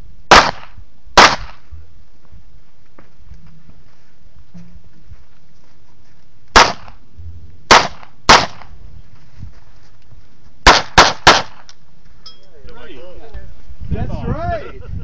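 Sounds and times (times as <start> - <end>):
pistol shots with ringing echo: 0.3 - 1.6, 6.6 - 7.0, 7.7 - 8.7, 10.6 - 11.7.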